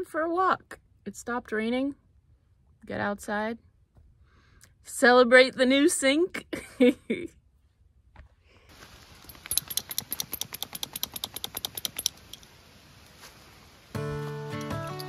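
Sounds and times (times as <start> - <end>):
leash and harness jingling: 9.2 - 12.5
background music: 13.9 - 15.0.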